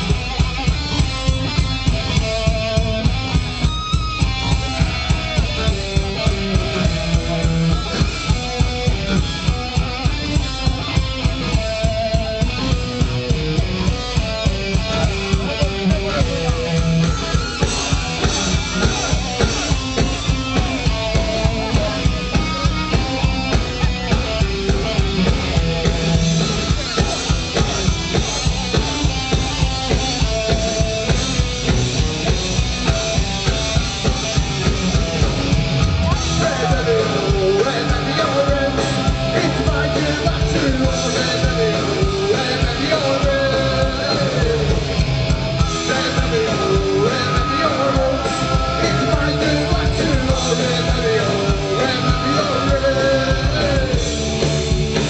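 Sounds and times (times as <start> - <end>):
distorted guitars: 0.0 - 55.0
fast drum beat: 0.0 - 55.0
punk rock band playing live: 0.0 - 55.0
man singing: 4.6 - 31.5, 36.1 - 54.5.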